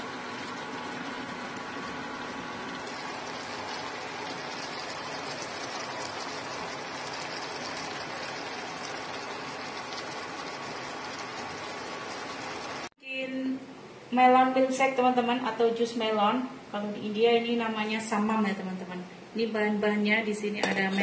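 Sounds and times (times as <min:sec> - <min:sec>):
sauce sizzling in a frying pan: 0:00.0 - 0:12.9.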